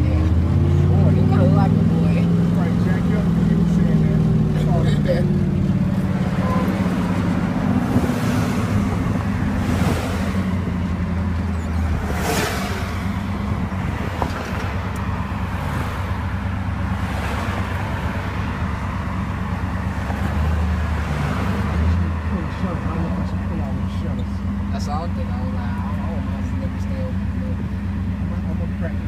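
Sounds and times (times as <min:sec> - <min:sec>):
vehicle engine drone: 0:00.0 - 0:29.0.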